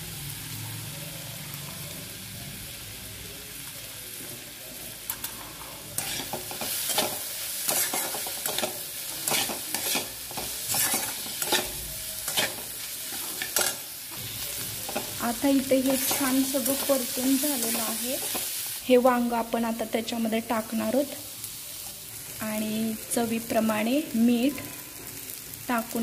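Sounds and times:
vegetables sizzling in oil: 0.0s - 26.0s
steel spatula scraping pan: 6.0s - 13.8s.

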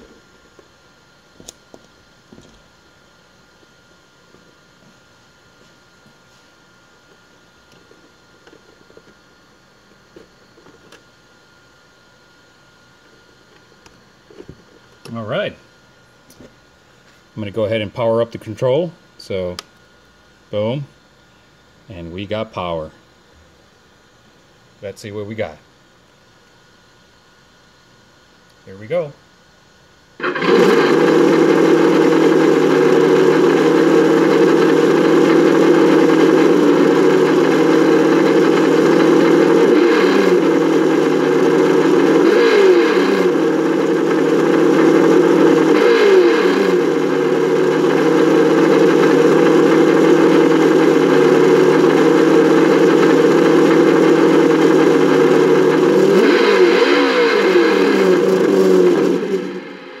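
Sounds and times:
simulated engine sound revving: 30.2s - 60.0s.

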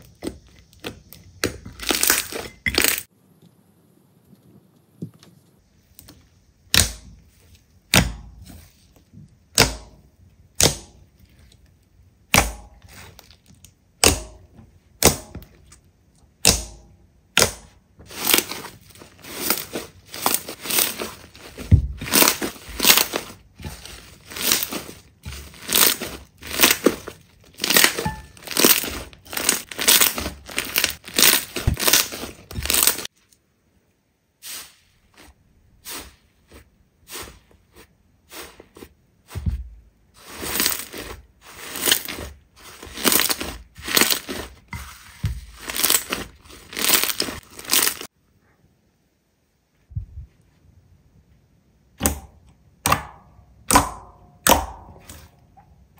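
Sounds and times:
slime crackling and popping: 0.7s - 3.1s, 16.4s - 33.1s, 45.5s - 48.1s.

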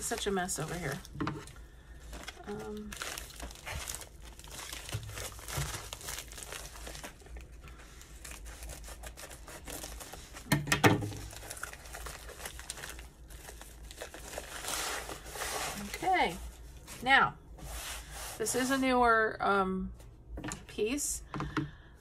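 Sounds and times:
plastic sleeve crinkling: 0.0s - 10.5s, 11.1s - 16.9s.

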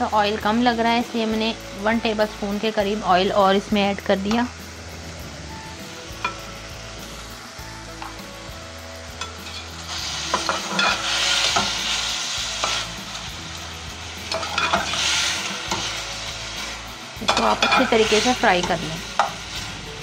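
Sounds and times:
chicken sizzling in oil: 0.0s - 20.0s
metal spatula scraping pan: 9.2s - 12.9s, 14.2s - 16.1s, 17.2s - 19.4s.

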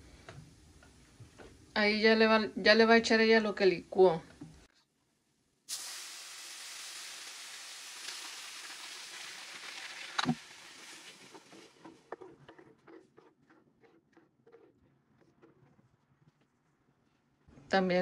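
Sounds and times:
sauce sizzling in frying pan: 5.7s - 11.6s.

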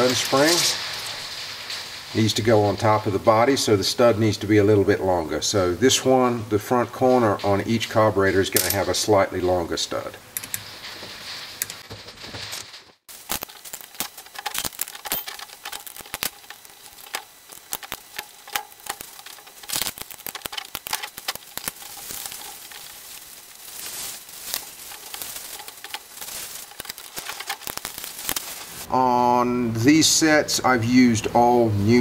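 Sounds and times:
metallic clicks of steel studs: 10.3s - 22.9s.

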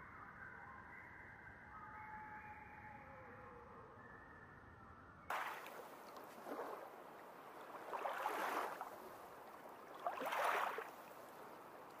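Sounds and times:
faint steady hiss: 5.3s - 12.0s
shallow water sloshing: 5.3s - 12.0s.

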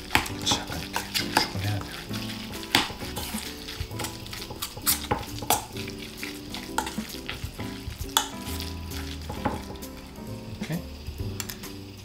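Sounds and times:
wet squishing of mixing food: 0.0s - 10.8s
spoon clinking against metal bowl: 0.1s - 7.4s, 8.1s - 9.8s.

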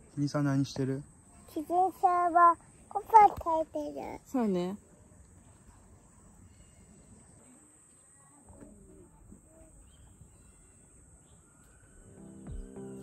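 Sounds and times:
faint outdoor ambience: 0.0s - 13.0s
quiet bird calls: 5.4s - 13.0s.

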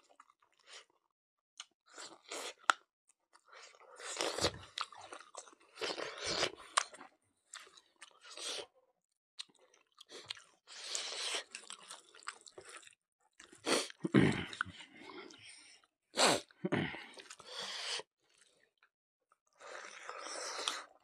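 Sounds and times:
person chewing wetly: 3.6s - 8.6s, 9.4s - 14.8s.

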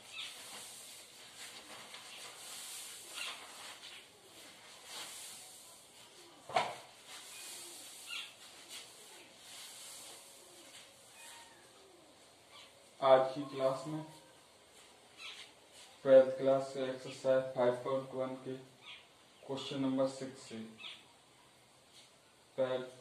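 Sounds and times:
clothing rustling: 0.0s - 11.5s
microphone hiss: 0.0s - 23.0s.

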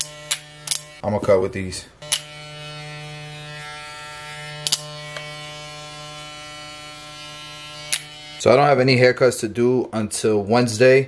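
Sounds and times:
hair clipper buzzing: 0.0s - 1.0s, 2.0s - 8.8s.

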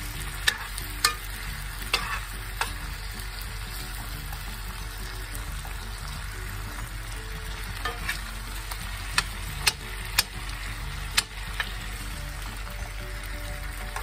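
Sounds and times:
potatoes sizzling in hot oil: 0.0s - 14.0s
metal fork clinking on pan: 0.4s - 1.3s, 1.9s - 2.8s, 7.8s - 8.2s.

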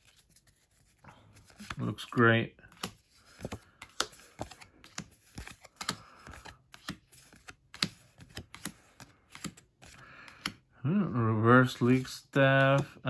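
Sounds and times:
cards flipped with light clicks: 0.0s - 10.6s, 11.8s - 13.0s.

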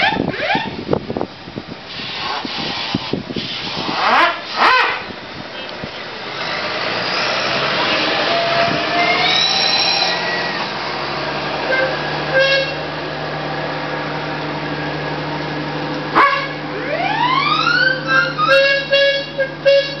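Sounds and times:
steady steam hiss: 1.8s - 4.6s
steam whistles blowing: 8.2s - 10.8s, 11.7s - 12.8s, 17.5s - 20.0s.

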